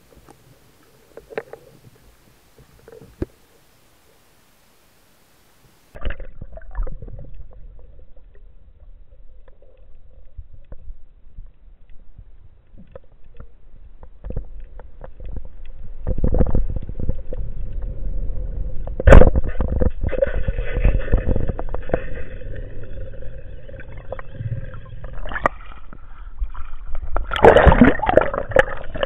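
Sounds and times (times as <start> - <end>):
scattered underwater clicks: 0.0 - 3.6, 9.2 - 29.0
underwater rumble: 5.9 - 29.0.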